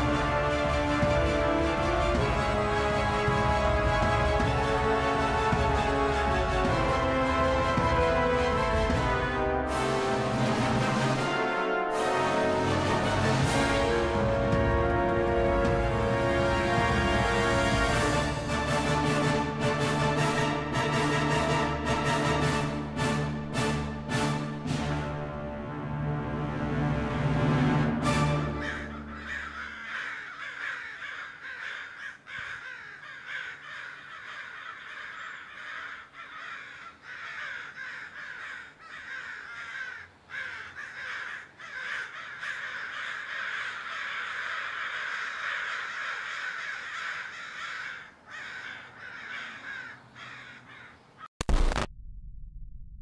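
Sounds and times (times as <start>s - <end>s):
music: 0.0s - 30.0s
flock of crows calling: 28.3s - 51.3s.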